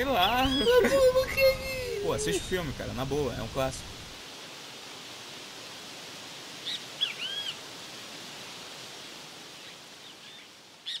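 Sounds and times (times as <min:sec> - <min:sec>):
bird calling: 0:00.0 - 0:02.7, 0:06.6 - 0:07.6
steady outdoor hiss: 0:00.0 - 0:11.0.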